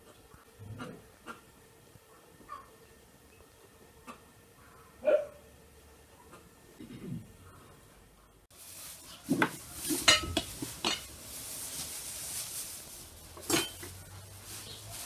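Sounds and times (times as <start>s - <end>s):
metal bowls and jars clinking: 9.2s - 11.2s, 13.3s - 14.8s.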